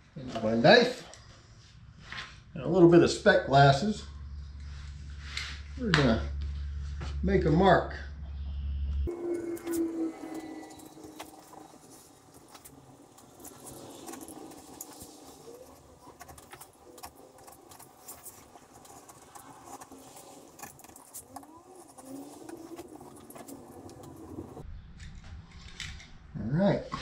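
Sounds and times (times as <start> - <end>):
knife scratching wood: 9.1 - 24.6.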